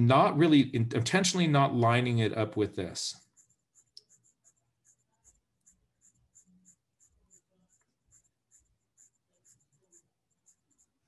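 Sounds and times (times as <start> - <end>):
colored pencil scratching on paper: 3.1 - 11.0.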